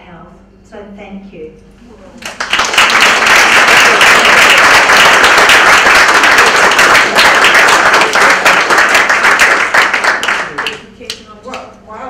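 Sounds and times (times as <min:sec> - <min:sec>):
audience applauding: 0:02.2 - 0:10.8.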